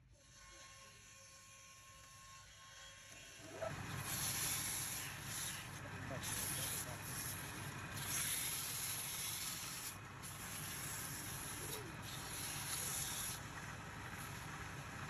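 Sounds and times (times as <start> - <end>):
lathe humming: 3.1 - 15.0
sandpaper hissing on spinning wood: 3.5 - 14.8.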